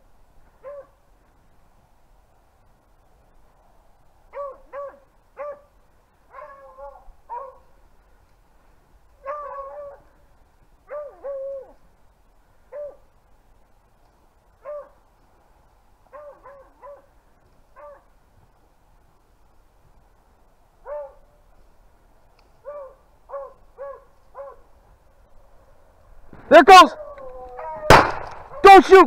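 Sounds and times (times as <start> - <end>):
hounds baying: 0.6 - 1.0, 4.3 - 7.8, 9.2 - 11.9, 12.6 - 13.1, 14.6 - 15.1, 16.0 - 18.2, 20.8 - 21.4, 22.6 - 24.8.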